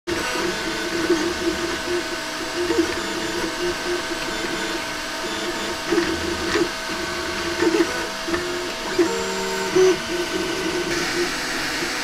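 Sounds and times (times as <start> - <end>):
fan humming: 0.1 - 12.0
stepper motors whining: 0.1 - 12.0.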